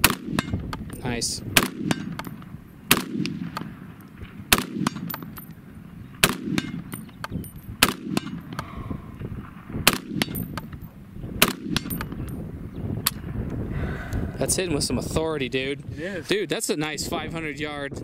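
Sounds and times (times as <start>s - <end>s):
rifle single shots: 0.0s - 8.6s, 9.2s - 10.8s, 11.4s - 12.4s
faint cracks and sharp ticks: 3.2s - 9.4s.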